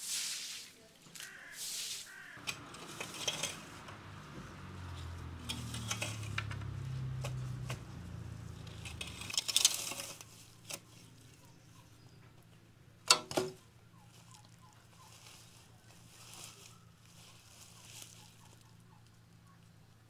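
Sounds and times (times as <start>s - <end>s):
broom sweeping tiled floor: 0.0s - 10.4s
rustling through dry grass: 0.0s - 12.0s, 13.5s - 19.2s
rake scraping through soil: 1.6s - 11.3s.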